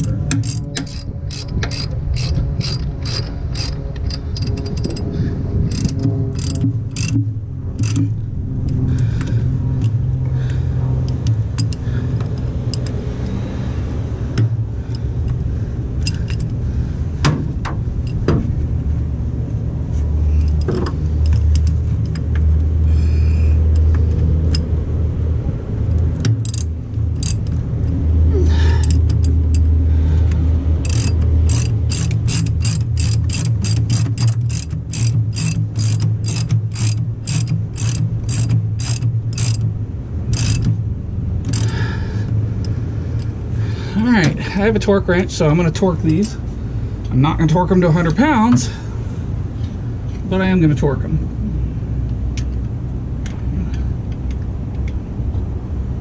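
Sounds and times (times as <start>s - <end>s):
ratchet wrench clicking: 0.0s - 5.1s, 5.7s - 10.0s, 11.0s - 13.0s, 16.0s - 16.6s, 20.3s - 24.7s, 25.9s - 28.0s, 28.7s - 29.7s, 30.8s - 40.8s, 41.4s - 43.4s
steady low rumble: 0.0s - 56.0s.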